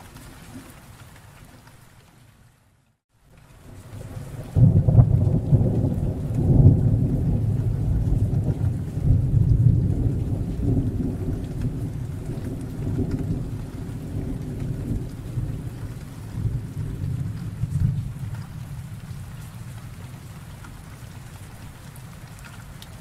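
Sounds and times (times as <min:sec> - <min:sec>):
rain: 0:00.0 - 0:23.0
thunder rumbling: 0:03.6 - 0:23.0.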